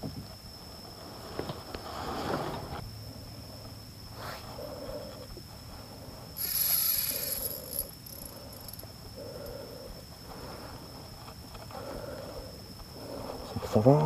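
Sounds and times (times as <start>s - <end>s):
steady high whine: 0.0s - 14.0s
loud hissing rush: 5.7s - 8.6s.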